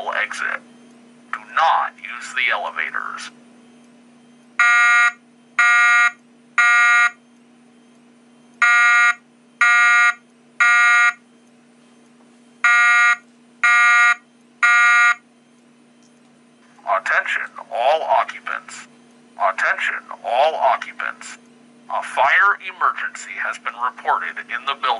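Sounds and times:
buzzy fire alarm beeps: 0:02.2 - 0:17.5.

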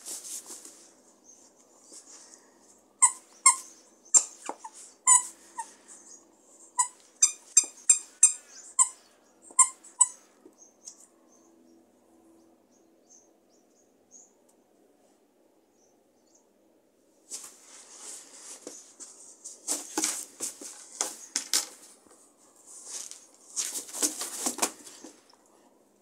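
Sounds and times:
dog toy squeaking: 0:03.0 - 0:05.7, 0:06.8 - 0:10.2.

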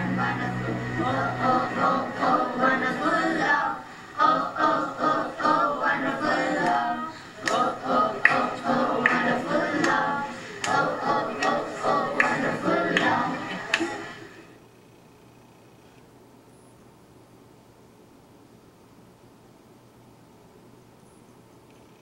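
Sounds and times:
children singing: 0:00.0 - 0:14.3.

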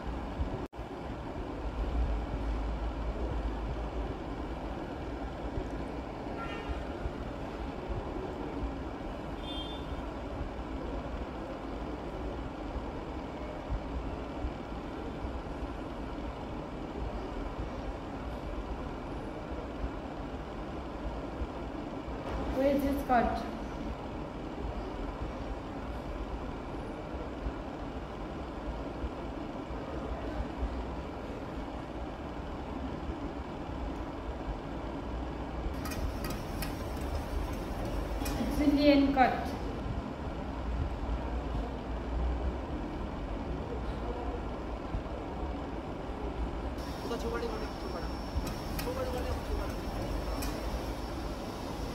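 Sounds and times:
low kitchen rumble: 0:35.7 - 0:41.2.

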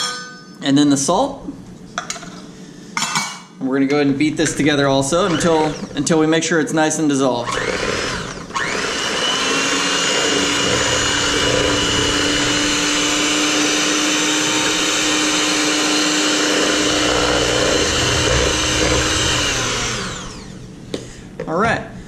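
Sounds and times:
electric hand mixer whirring: 0:04.2 - 0:06.3, 0:07.3 - 0:20.8.

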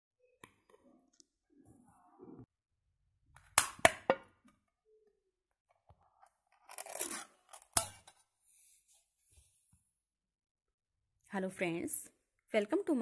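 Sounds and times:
metal lid tearing: 0:06.5 - 0:08.1.

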